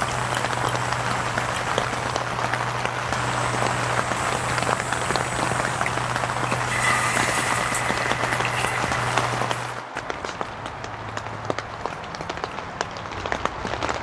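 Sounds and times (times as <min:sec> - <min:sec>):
low hum: 0:00.0 - 0:10.2
rain pattering on a tent: 0:00.0 - 0:14.0.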